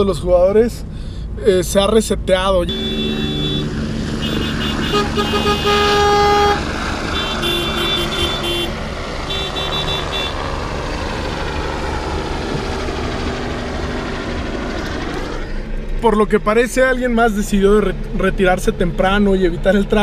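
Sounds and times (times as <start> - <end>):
idling cars rumbling: 0.0 - 20.0
car horn blast: 2.6 - 10.4
short car horn toots: 2.7 - 6.6, 7.2 - 8.7.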